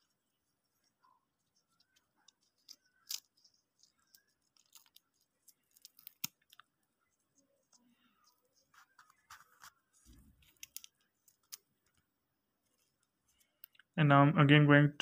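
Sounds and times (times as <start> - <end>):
crystals crumbling and crackling: 1.8 - 6.6.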